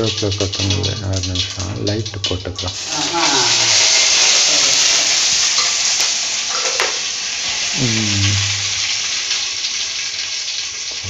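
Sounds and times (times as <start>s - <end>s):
person speaking: 0.0s - 3.6s, 7.8s - 8.7s
spices sizzling in hot oil: 0.0s - 11.0s.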